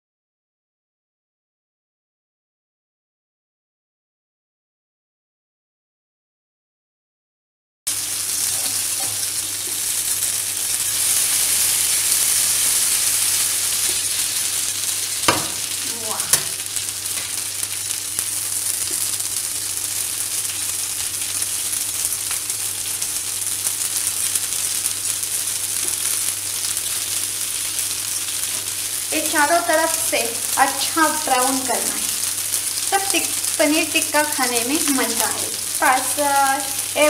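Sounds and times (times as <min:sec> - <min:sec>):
skewers sizzling in a pan: 0:07.9 - 0:37.0
sharp clicks in a pan: 0:15.2 - 0:15.6, 0:22.2 - 0:22.5, 0:25.8 - 0:26.2.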